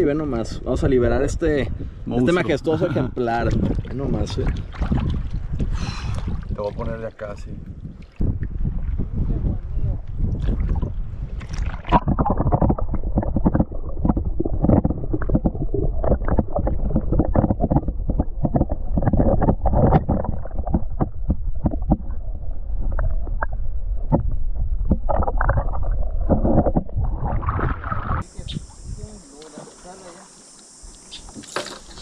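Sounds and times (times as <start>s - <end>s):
shallow water splashing: 3.2s - 32.0s
steady low rumble: 3.4s - 29.2s.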